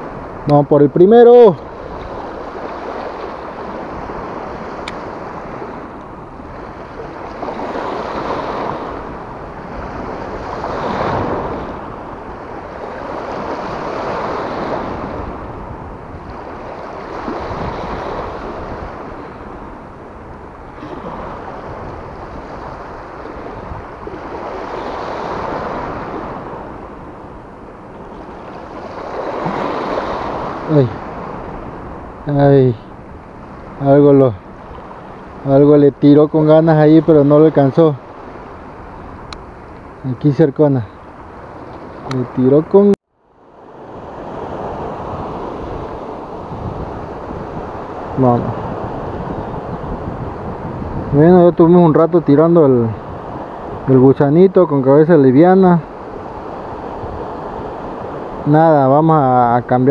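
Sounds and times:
wind on microphone: 0:00.0 - 0:42.9, 0:43.7 - 0:58.6
waves washing against rocks: 0:06.6 - 0:15.4.

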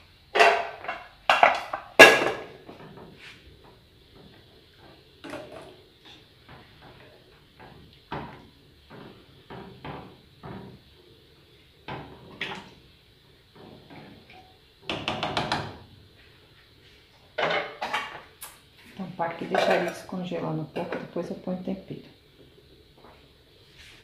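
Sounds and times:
wooden spoon knocking on pot: 0:14.8 - 0:15.8.

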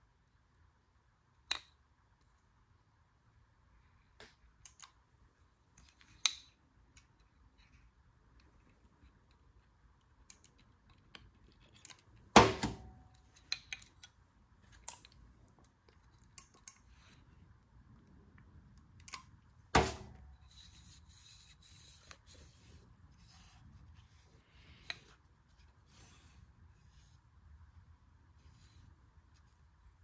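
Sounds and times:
small clicks and taps of metal parts: 0:04.2 - 0:05.0, 0:05.7 - 0:12.3, 0:13.1 - 0:17.2
soft scratchy rubbing: 0:20.3 - 0:30.0.

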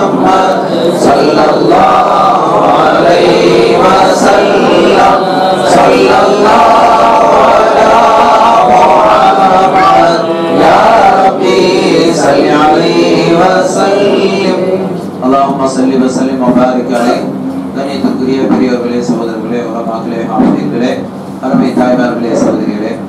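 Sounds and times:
men chanting together: 0:00.0 - 0:17.3.

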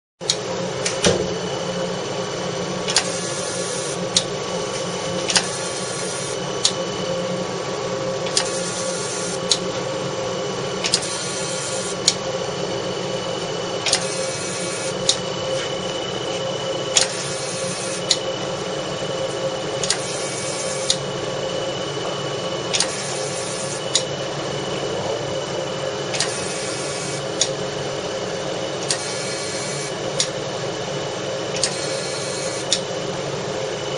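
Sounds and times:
laser unit humming: 0:00.2 - 0:33.9
machine hissing: 0:00.8 - 0:30.4, 0:31.5 - 0:32.9
machine clicks: 0:02.9 - 0:03.2, 0:08.2 - 0:08.8, 0:10.8 - 0:11.2, 0:13.8 - 0:15.2, 0:22.7 - 0:23.0, 0:26.1 - 0:26.7, 0:31.6 - 0:32.8.

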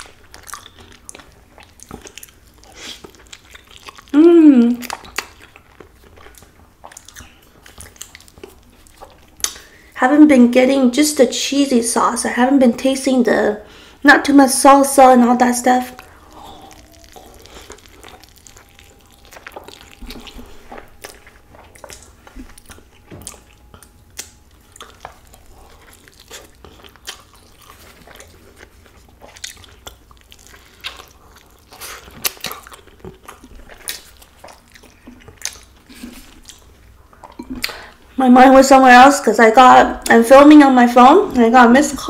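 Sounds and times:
person chewing food: 0:00.0 - 0:10.0, 0:15.7 - 0:38.2
wet mouth clicks and smacks: 0:04.8 - 0:09.7, 0:16.0 - 0:25.3, 0:29.3 - 0:37.9.

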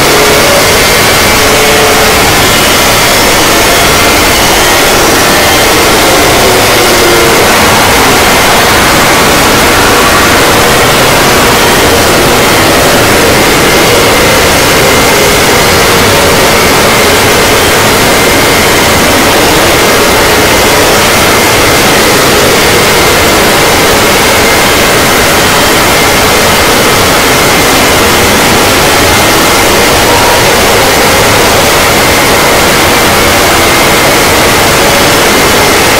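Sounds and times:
harsh static noise: 0:00.0 - 0:35.9.

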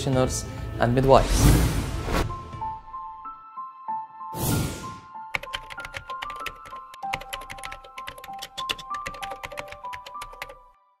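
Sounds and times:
background music with held notes: 0:00.0 - 0:11.0
keyboard typing clicks: 0:05.3 - 0:10.6.

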